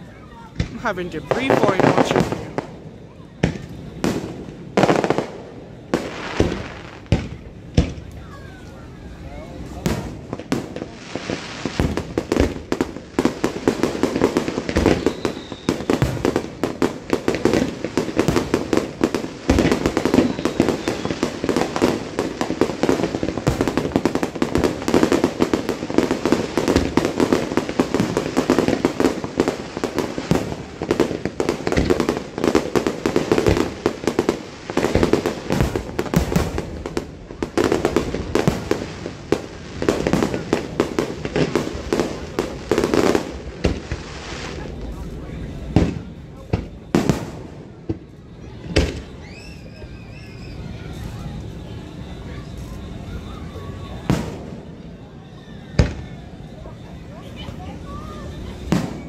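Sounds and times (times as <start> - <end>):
fireworks bursting: 0.0 - 59.0.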